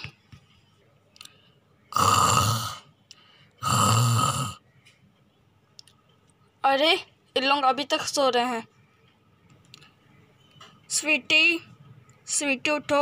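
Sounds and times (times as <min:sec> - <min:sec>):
person snoring loudly: 0:01.9 - 0:02.8, 0:03.6 - 0:04.6.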